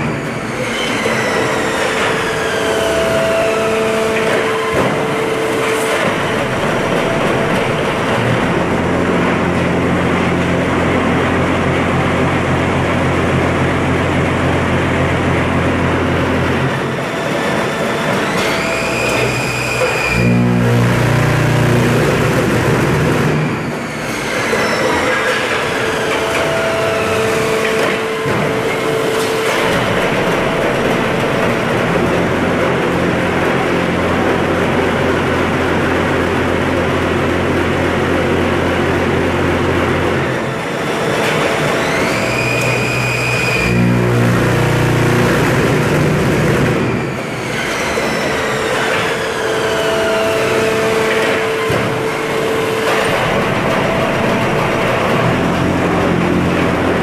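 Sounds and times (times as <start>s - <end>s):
rising machine whine: 0.0s - 57.0s
machine mechanical clatter: 16.6s - 35.4s, 39.0s - 57.0s
low machine hum: 18.5s - 23.9s, 41.2s - 47.2s.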